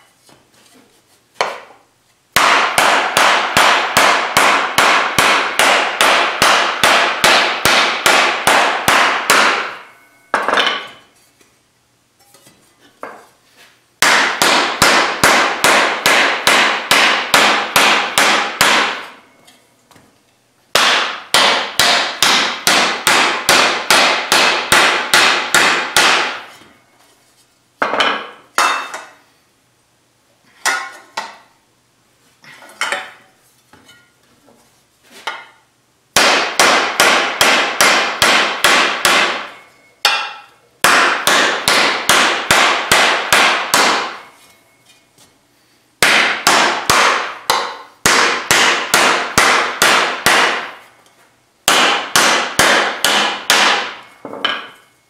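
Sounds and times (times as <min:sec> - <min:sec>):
mallet hammering steel sheet: 0:02.4 - 0:11.0, 0:14.0 - 0:19.4, 0:20.7 - 0:26.9, 0:27.8 - 0:29.2, 0:36.2 - 0:44.4, 0:46.0 - 0:51.0, 0:51.6 - 0:54.9.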